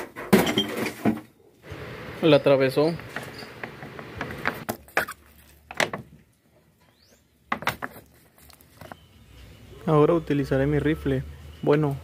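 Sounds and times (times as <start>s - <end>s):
plastic bottle clicks and knocks: 7.5s - 8.0s.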